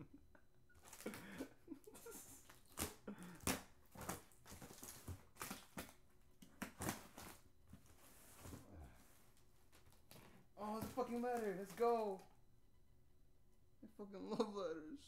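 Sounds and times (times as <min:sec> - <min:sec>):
cardboard and paper rustling: 0:00.8 - 0:12.3.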